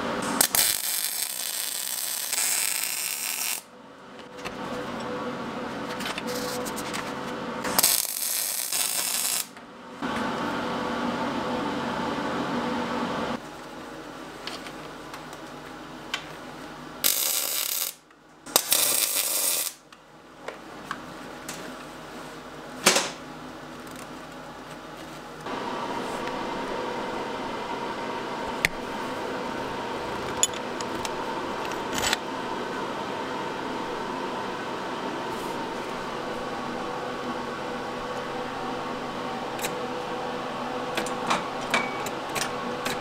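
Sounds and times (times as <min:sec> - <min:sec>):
welding bursts: 0:00.2 - 0:03.7, 0:07.7 - 0:09.6, 0:17.0 - 0:19.8.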